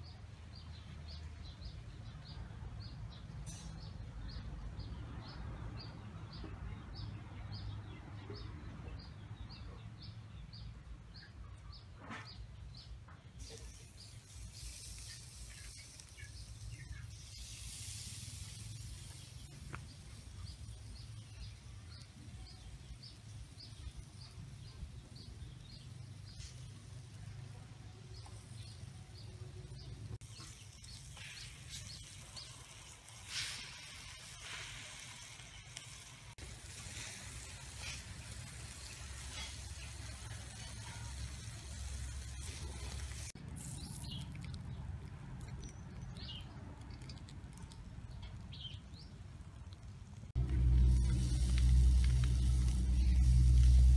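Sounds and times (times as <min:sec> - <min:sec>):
steady low rumble: 0:44.5 - 0:53.9.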